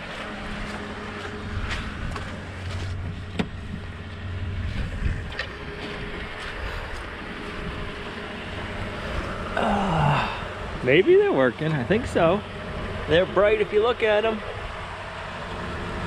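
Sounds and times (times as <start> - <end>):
truck engine idling: 0.0 - 16.0
wind on microphone: 3.0 - 8.1.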